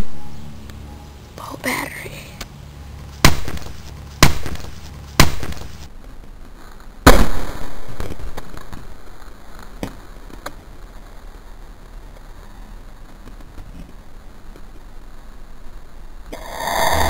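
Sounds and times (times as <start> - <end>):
sharp bangs: 3.2 - 5.9.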